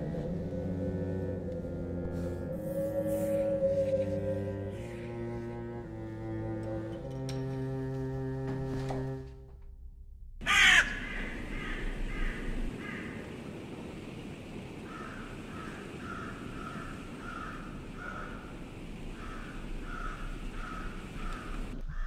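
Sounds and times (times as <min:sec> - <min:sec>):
crows cawing: 0:10.4 - 0:13.3, 0:14.9 - 0:22.0.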